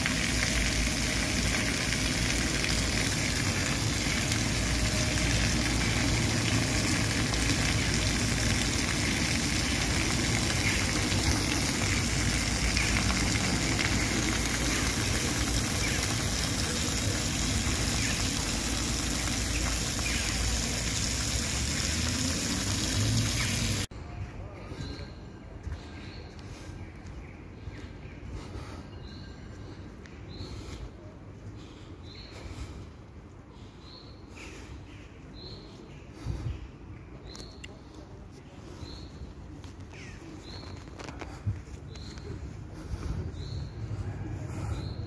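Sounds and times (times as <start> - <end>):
fountain water splashing: 0.0 - 23.9.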